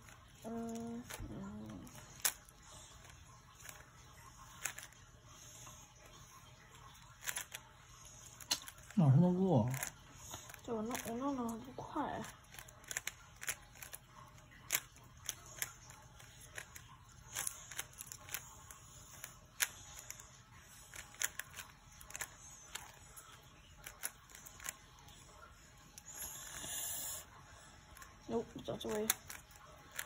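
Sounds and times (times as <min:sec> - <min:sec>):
puzzle cube clicking: 0:07.2 - 0:07.6.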